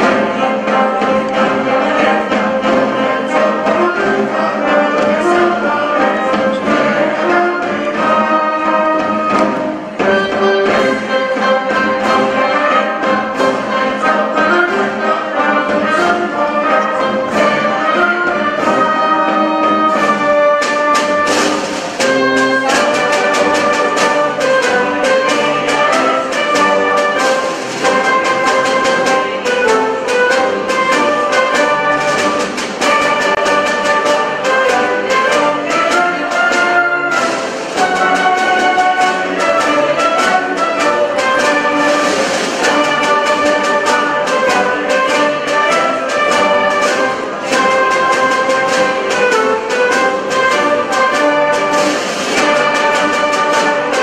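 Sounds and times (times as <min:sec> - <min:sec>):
brass and clarinets melody: 0:00.0 - 0:54.0
drum strokes: 0:00.0 - 0:54.0.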